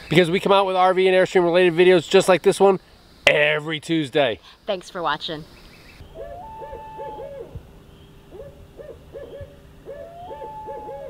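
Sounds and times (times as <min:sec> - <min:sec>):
owl hooting: 0:05.6 - 0:11.0.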